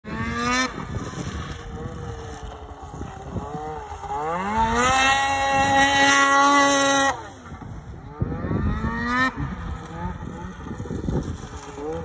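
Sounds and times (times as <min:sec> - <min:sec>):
snowmobile engine revving: 0:00.0 - 0:12.0.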